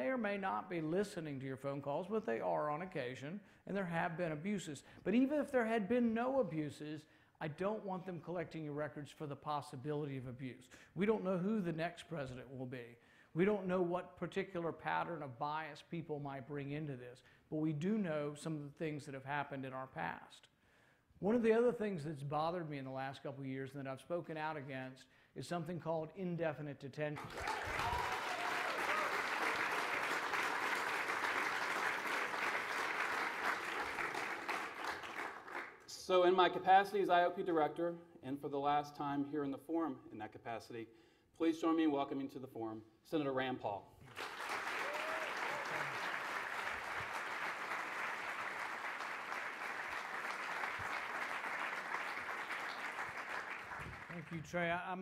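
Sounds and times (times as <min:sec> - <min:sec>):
audience applauding: 0:27.2 - 0:35.8, 0:44.0 - 0:54.5.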